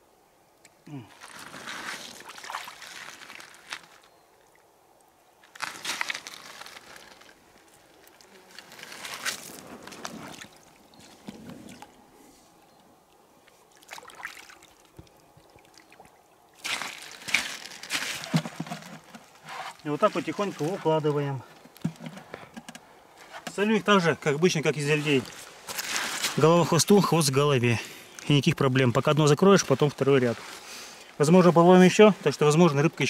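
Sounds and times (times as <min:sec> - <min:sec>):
water splashing: 0:00.9 - 0:04.6, 0:05.5 - 0:12.0, 0:13.0 - 0:21.3.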